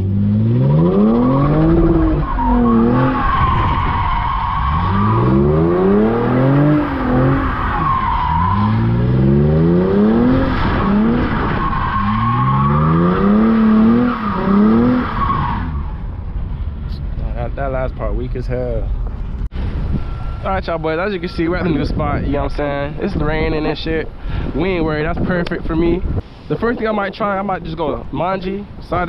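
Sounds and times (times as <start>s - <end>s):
car engine revving: 0.0s - 17.0s
tyres squealing on wet pavement: 0.8s - 9.4s, 10.2s - 16.0s.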